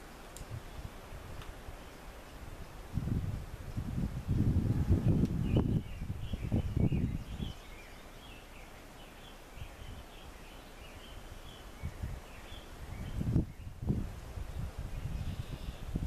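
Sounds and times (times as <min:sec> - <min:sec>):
outdoor background noise: 0:00.0 - 0:16.0
small birds chirping: 0:05.0 - 0:16.0.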